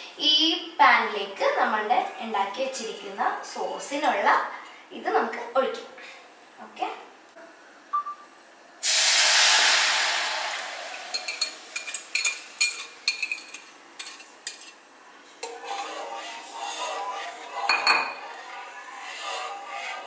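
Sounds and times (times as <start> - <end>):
sauce sizzling in hot pan: 8.8 - 14.7
whisk clanking: 10.9 - 14.7
whisk clinking and scraping: 11.1 - 14.8, 15.4 - 20.0.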